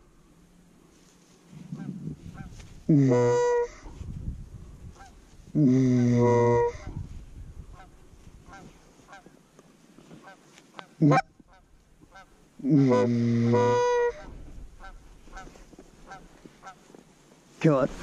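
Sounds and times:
distant geese honking: 0:01.6 - 0:03.9, 0:06.0 - 0:06.9, 0:07.7 - 0:09.4, 0:10.1 - 0:17.0
goose call blown: 0:01.8 - 0:03.9, 0:05.8 - 0:06.9, 0:10.8 - 0:11.3, 0:12.1 - 0:16.8.

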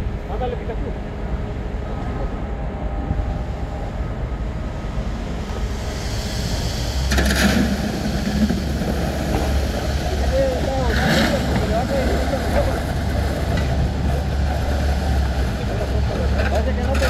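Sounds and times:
diesel engines rumbling: 0:00.0 - 0:17.0
hissing and rattling: 0:05.5 - 0:16.4.

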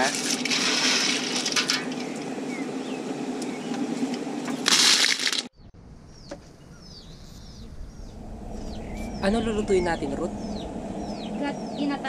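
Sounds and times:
clam shells clattering in metal basin: 0:00.0 - 0:02.1, 0:04.6 - 0:05.5.

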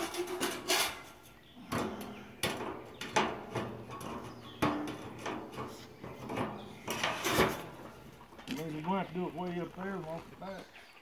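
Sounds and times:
metal tubing clanking and scraping: 0:00.0 - 0:08.9.

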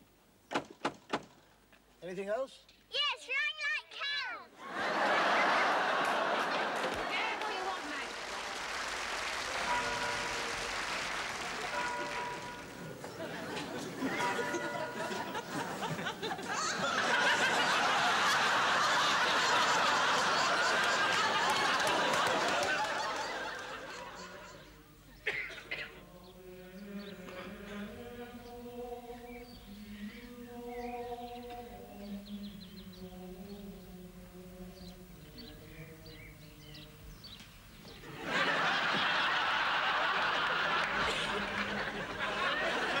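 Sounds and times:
studio audience laughing: 0:04.6 - 0:08.5, 0:09.4 - 0:24.7, 0:38.0 - 0:43.0.

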